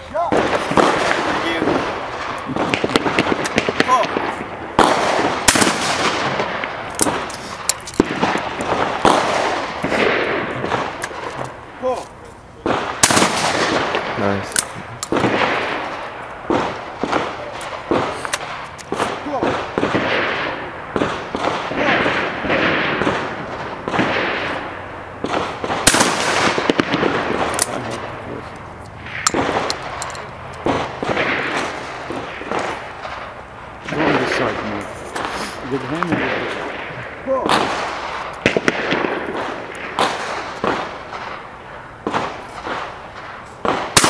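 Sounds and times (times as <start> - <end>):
faint distant gunshots: 0.0 - 12.0, 12.6 - 44.0
shotgun shots echoing: 0.0 - 44.0
smaller cracks: 0.3 - 12.1.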